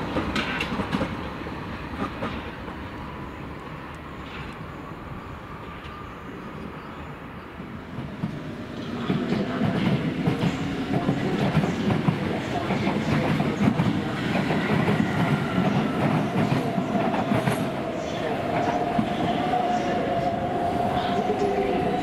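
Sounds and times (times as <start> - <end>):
train wheels rumbling on rails: 0.0 - 2.8, 7.8 - 22.0.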